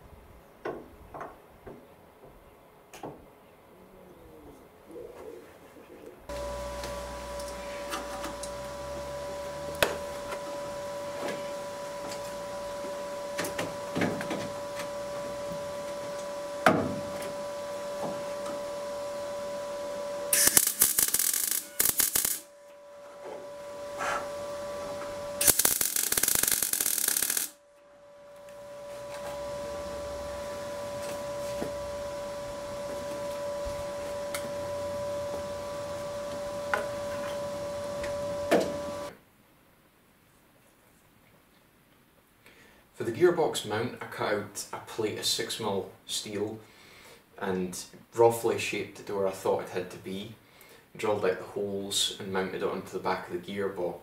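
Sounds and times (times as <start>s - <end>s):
electric arc welding: 6.3s - 22.5s, 23.4s - 27.6s
steady hum: 6.3s - 39.1s.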